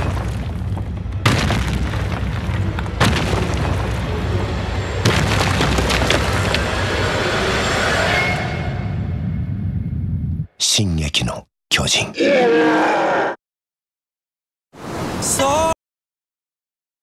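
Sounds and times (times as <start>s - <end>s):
deep booming impact hits: 0.0s - 4.3s
heavy low rumble: 0.0s - 10.5s.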